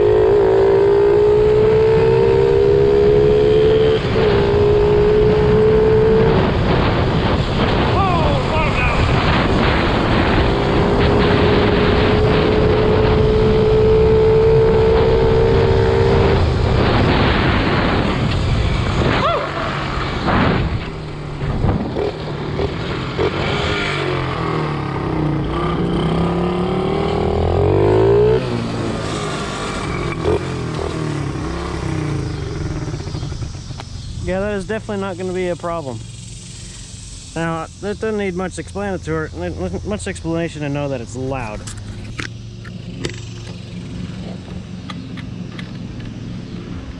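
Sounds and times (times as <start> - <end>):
dirt bike engine revving: 0.0 - 41.5.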